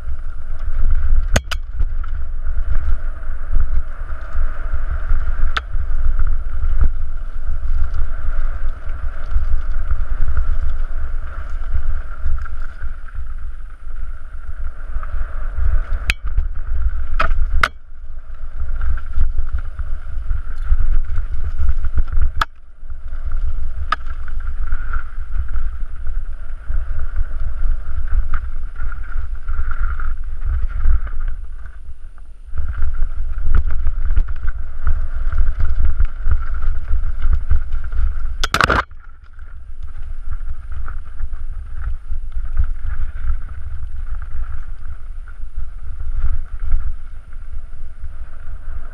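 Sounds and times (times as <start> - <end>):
wind rumble on microphone: 0.0 - 48.9
bike hitting stones: 38.4 - 39.1.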